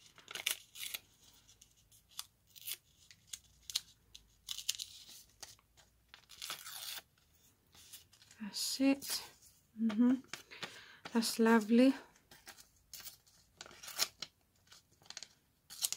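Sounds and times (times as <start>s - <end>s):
paper tearing in short rips: 6.3s - 7.1s.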